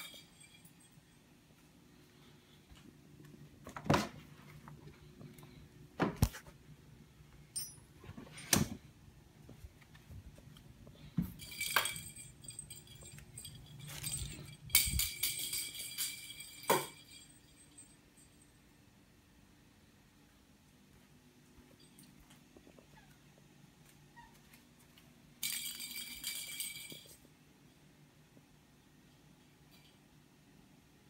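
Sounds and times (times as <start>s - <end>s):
small bell jingling: 0.0s - 1.3s, 11.3s - 18.8s, 25.4s - 27.3s
toy ball clattering on hard floor: 11.2s - 18.0s, 25.4s - 27.3s.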